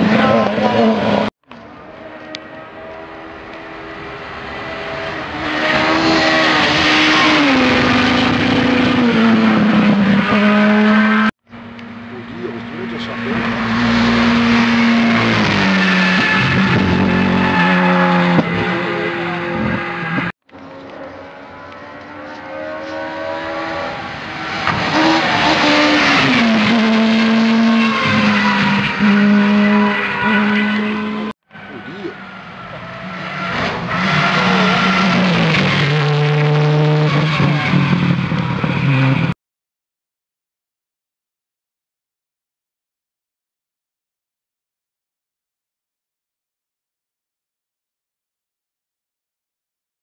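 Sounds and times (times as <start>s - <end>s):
rally car engine at high revs: 0.0s - 39.4s.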